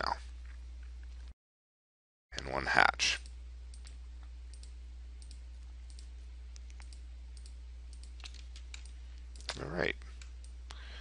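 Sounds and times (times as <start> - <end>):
low electrical hum: 0.0 - 1.4, 2.3 - 11.0
computer mouse clicks: 3.7 - 9.6.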